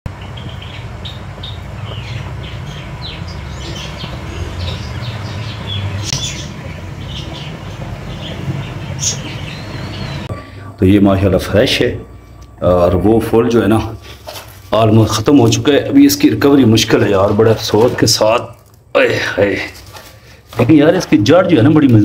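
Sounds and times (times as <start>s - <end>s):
budgerigars chattering: 0.1s - 10.3s.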